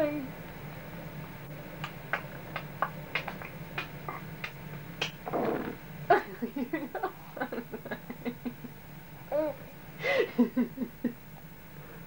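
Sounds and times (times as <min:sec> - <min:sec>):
baby cooing and giggling: 0:09.3 - 0:09.7.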